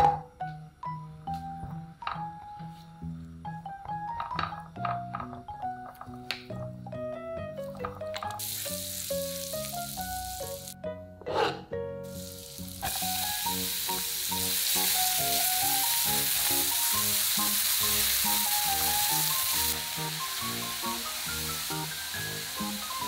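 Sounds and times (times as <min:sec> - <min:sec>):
plucked background melody: 0:00.0 - 0:23.0
garlic sizzling in butter: 0:08.3 - 0:10.8, 0:12.0 - 0:23.0.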